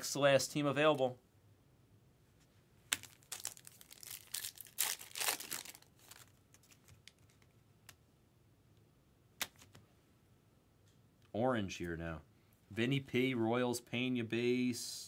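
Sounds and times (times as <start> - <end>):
foil wrapper crinkling: 2.9 - 7.5.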